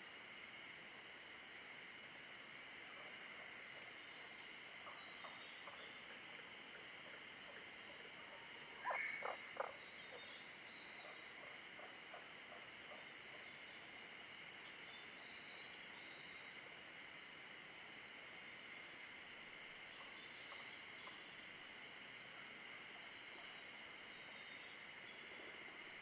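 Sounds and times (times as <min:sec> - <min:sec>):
frogs croaking: 0:00.0 - 0:26.0
faint high birdsong: 0:08.3 - 0:11.6.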